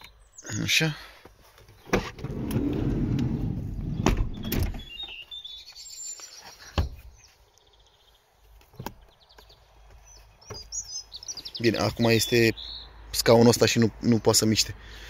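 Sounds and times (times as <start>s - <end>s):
seat rattling slide with clicks: 1.8s - 4.9s
seat clunking into place: 1.8s - 5.0s.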